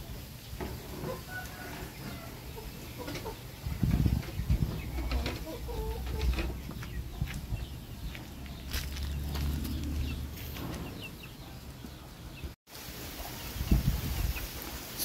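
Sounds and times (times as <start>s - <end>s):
rooster clucking: 0.8s - 11.6s.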